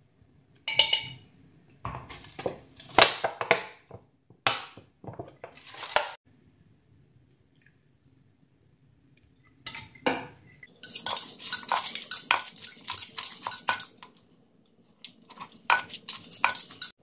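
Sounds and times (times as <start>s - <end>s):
metal spoon clinking and scraping: 10.7s - 14.2s, 15.0s - 17.0s.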